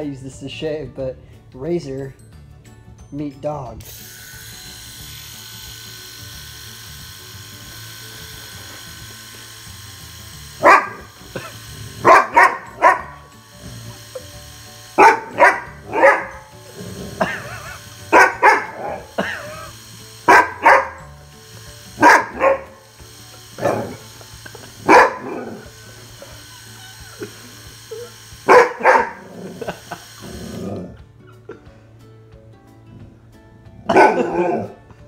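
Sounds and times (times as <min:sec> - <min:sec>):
electric razor hum: 0:03.6 - 0:35.0
dog barking and yowling: 0:10.6 - 0:11.1, 0:12.0 - 0:13.3, 0:15.0 - 0:16.6, 0:17.2 - 0:19.4, 0:20.3 - 0:21.2, 0:22.0 - 0:22.8, 0:23.6 - 0:24.1, 0:24.8 - 0:25.7, 0:27.9 - 0:29.7, 0:33.8 - 0:34.8.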